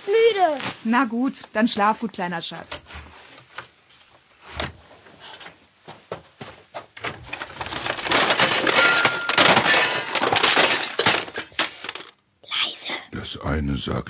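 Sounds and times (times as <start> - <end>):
loud rustling and clattering: 4.5 - 12.1.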